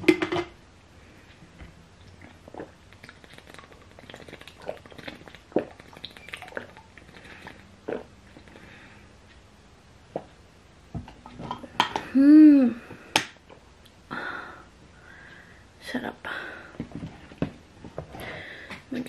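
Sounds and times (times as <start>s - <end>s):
person gulping water: 2.0s - 8.7s.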